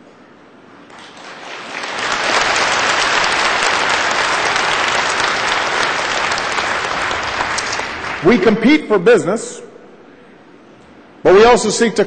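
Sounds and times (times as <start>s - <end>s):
audience applauding: 0.9s - 8.5s.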